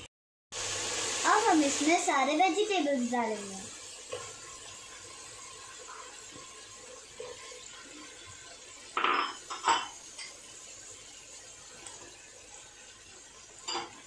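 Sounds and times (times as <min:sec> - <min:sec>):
sauce simmering with faint sizzle: 0:00.6 - 0:14.0
kitchenware clattering against a pan: 0:08.9 - 0:10.4, 0:13.6 - 0:14.0.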